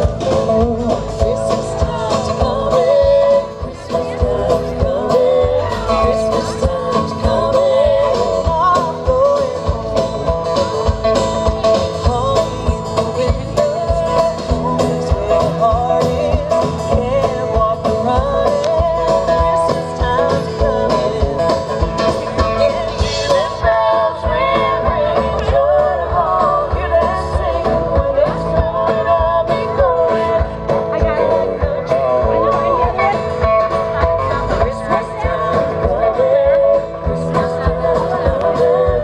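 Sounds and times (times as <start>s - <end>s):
live rock band playing: 0.0s - 39.0s
person singing: 0.0s - 39.0s.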